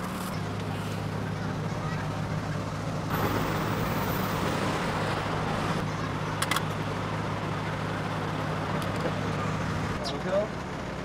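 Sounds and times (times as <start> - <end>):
street noise: 0.0 - 11.0.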